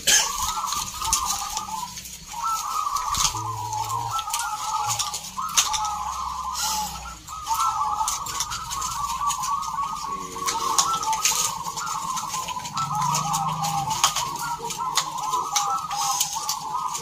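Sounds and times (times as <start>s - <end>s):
doves cooing: 0.0s - 17.0s.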